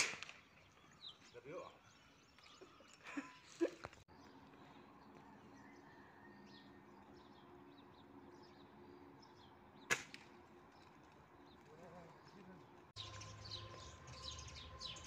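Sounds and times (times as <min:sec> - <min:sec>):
air rifle shot: 0:00.0 - 0:00.4
faint bird chirps: 0:04.2 - 0:09.4.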